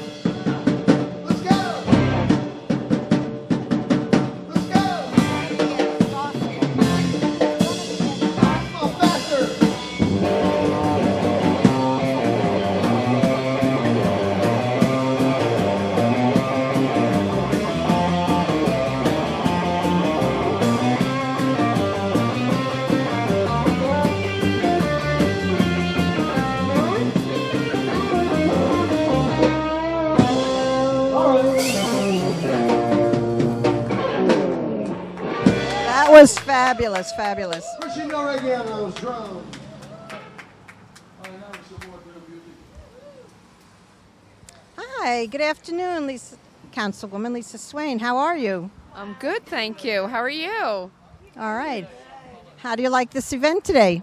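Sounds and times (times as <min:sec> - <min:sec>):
live rock band playing: 0:00.0 - 0:37.6.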